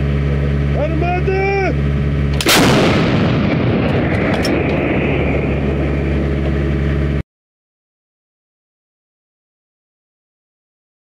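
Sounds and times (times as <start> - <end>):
howitzer blast: 0.2 - 7.2
echoing decay: 2.3 - 7.2.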